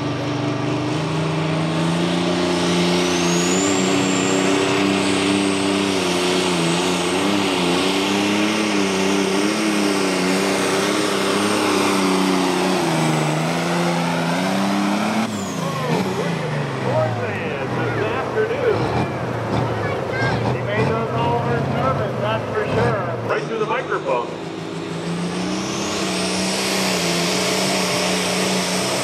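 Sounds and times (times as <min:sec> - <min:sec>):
tractor diesel engine under load: 0:00.0 - 0:29.0
high whistle: 0:03.0 - 0:05.1.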